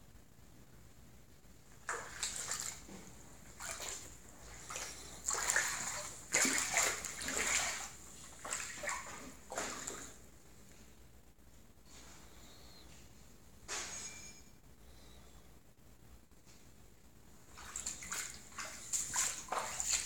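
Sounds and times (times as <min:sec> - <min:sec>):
footsteps splashing in water: 0:01.8 - 0:10.2, 0:17.5 - 0:20.0.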